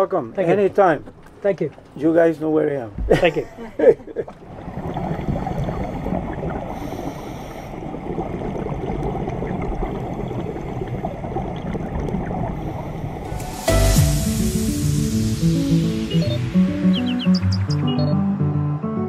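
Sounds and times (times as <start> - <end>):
faint underwater crackles: 0.0 - 17.7
underwater rushing water: 0.0 - 18.0.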